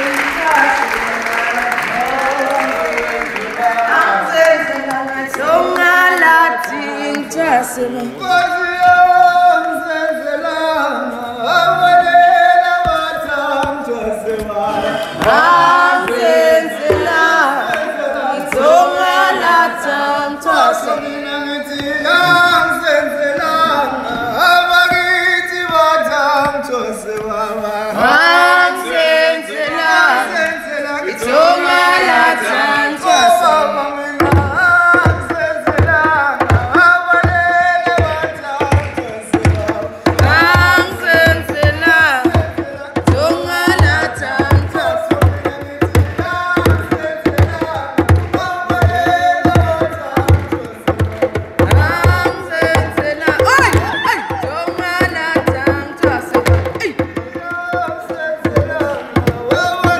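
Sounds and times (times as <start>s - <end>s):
people singing: 0.0s - 59.9s
drum beats: 7.2s - 27.4s, 31.2s - 59.9s.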